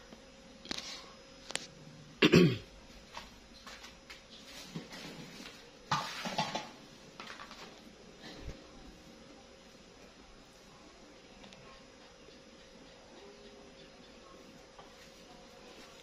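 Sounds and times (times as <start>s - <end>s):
person coughing: 2.2s - 2.7s
rustling and knocking: 3.7s - 7.8s.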